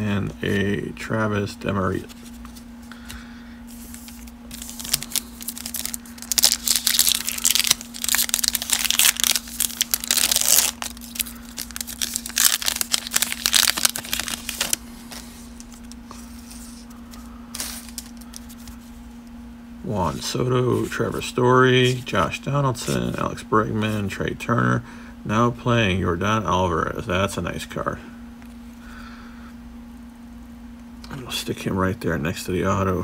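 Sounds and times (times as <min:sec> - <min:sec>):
foil wrapper crinkling and tearing: 0:02.2 - 0:18.8.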